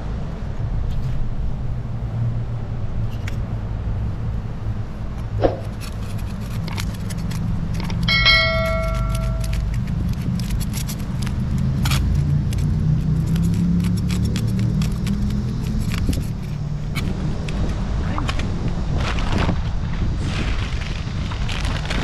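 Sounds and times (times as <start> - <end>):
knife scraping fish scales: 5.5 - 17.1
chime sound effect: 8.1 - 9.6.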